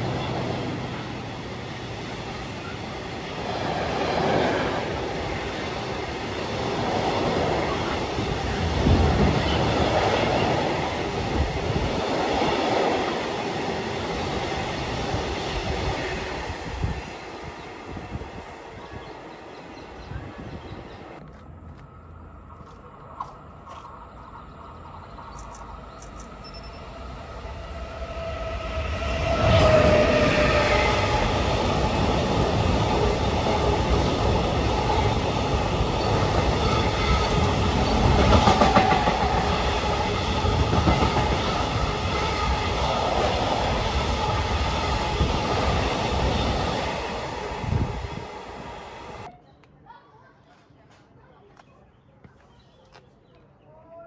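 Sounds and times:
freight train passing: 0.0 - 49.3
locomotive tone dropping in pitch: 24.2 - 31.6.

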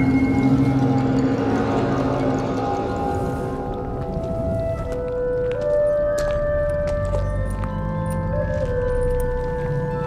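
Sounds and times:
low rumble: 0.0 - 5.3
slow film score music: 0.0 - 10.0.

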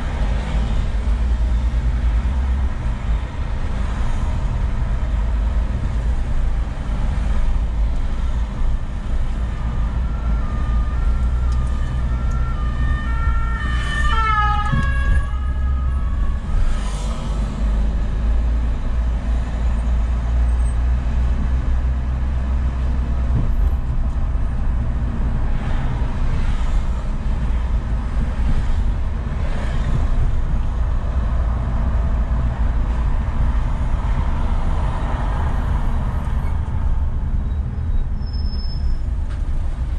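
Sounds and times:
car rumbling in traffic: 0.0 - 39.9
two-tone emergency siren: 9.4 - 17.1.

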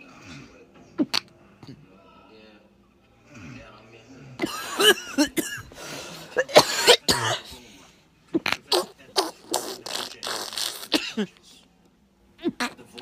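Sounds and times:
man coughing: 4.4 - 7.6, 10.9 - 11.3.

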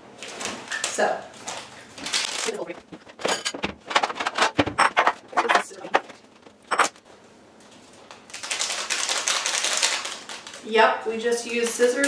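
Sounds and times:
plastic packet rustling: 0.2 - 6.7, 7.8 - 10.7
cabinet door and dishes clinking: 2.9 - 6.1.

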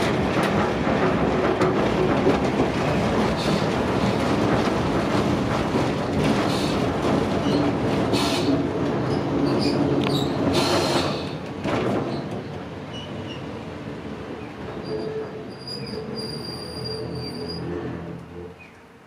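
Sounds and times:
streetcar motors and wheels rumbling: 0.0 - 19.0
high wheel squeals: 14.8 - 18.7.

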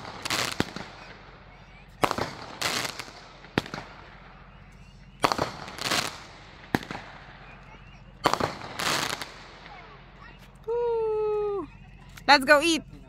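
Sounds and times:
fireworks bangs: 0.0 - 10.4
fireworks crackling: 0.0 - 10.6.

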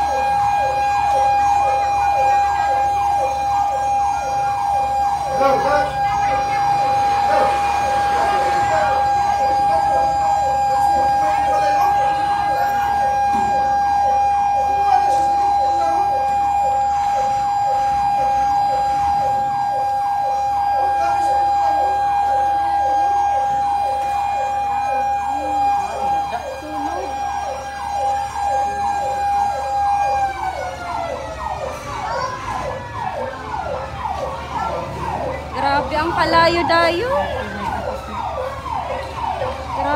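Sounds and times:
siren fast yelp: 0.0 - 39.9
siren rising and falling wail: 0.0 - 39.9
siren steady tone: 0.0 - 39.9.

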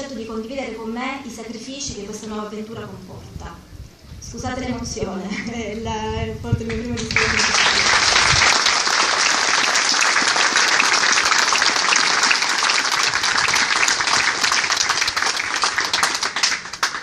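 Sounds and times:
audience applauding: 7.0 - 17.0.

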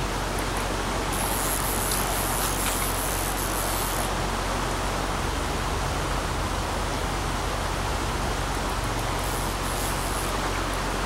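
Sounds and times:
stream rushing over rocks: 0.0 - 11.0
thin high hiss: 1.0 - 4.2, 9.0 - 11.0.

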